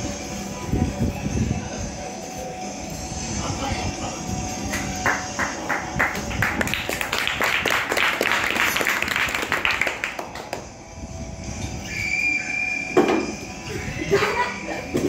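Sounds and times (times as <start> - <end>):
people clapping: 4.7 - 10.8.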